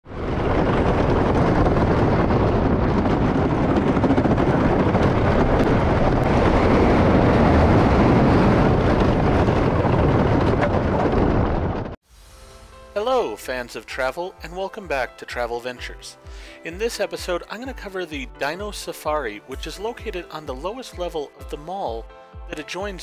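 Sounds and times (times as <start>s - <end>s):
roller coaster train rumbling: 0.0s - 12.0s
wind on microphone: 0.0s - 12.0s.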